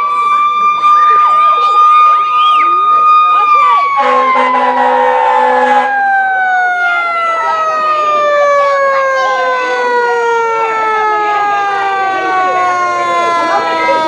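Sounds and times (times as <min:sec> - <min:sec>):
fire engine siren winding down: 0:00.0 - 0:14.0
air horn: 0:04.0 - 0:06.0.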